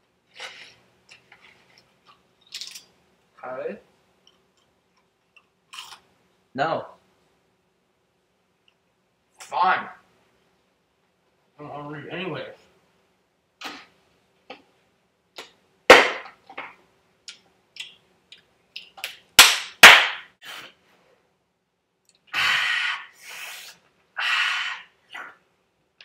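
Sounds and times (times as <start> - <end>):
sharp smacks: 15.9 - 16.4, 19.4 - 20.3
hissing bursts: 22.3 - 25.3.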